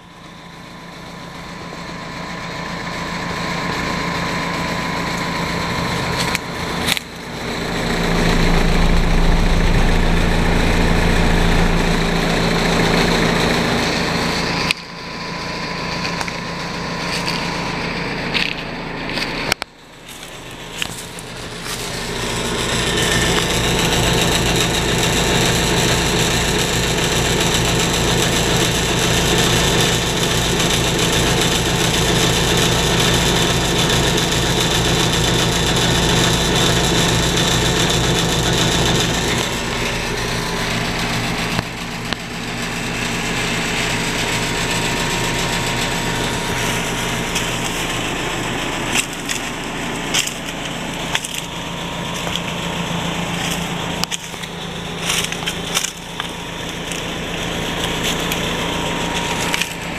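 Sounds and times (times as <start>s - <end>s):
heat pump humming: 0.0s - 59.9s
dry leaves crackling underfoot: 17.0s - 23.5s, 46.5s - 59.9s.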